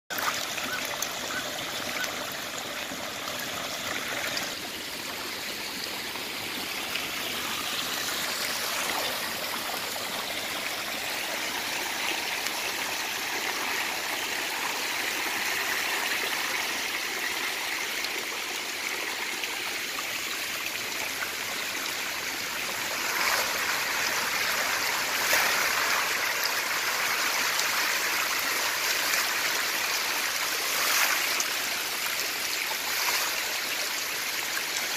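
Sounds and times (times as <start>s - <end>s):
water pouring from pipe: 0.1s - 20.0s.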